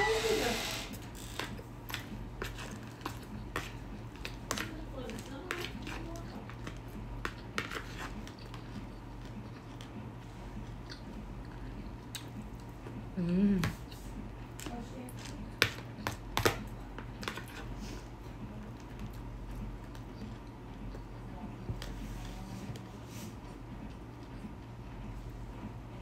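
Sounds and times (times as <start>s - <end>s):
person chewing: 1.5s - 4.7s, 5.6s - 17.7s.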